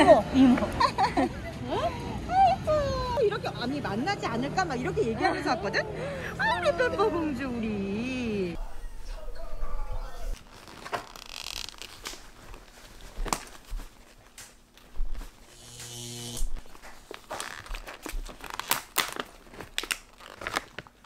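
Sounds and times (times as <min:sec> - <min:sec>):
plastic packaging crinkling: 0:10.4 - 0:15.5, 0:16.5 - 0:21.0
buzzing electric zap effect: 0:15.5 - 0:16.6.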